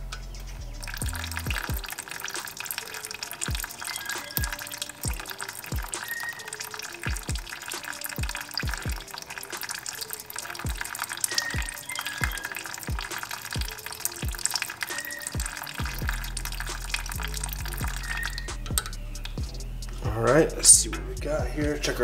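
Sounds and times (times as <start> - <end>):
sustained bass line: 0.0 - 1.7, 15.8 - 22.0.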